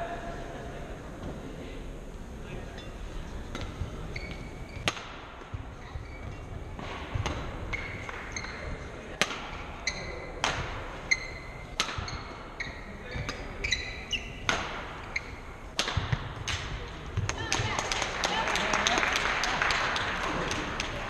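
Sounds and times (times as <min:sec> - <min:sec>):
low crowd murmur: 0:00.0 - 0:21.0
rackets hitting shuttlecock: 0:03.5 - 0:17.8
shoes squeaking on wooden floor: 0:03.7 - 0:04.9, 0:05.5 - 0:08.8, 0:11.0 - 0:15.6.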